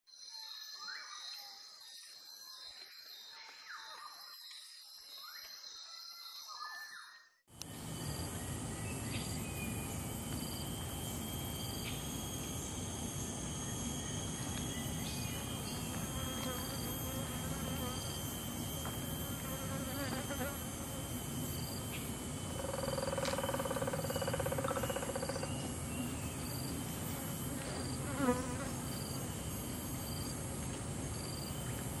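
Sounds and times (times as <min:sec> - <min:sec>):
insects trilling: 0:07.5 - 0:32.0
woodpecker drumming: 0:22.0 - 0:25.9.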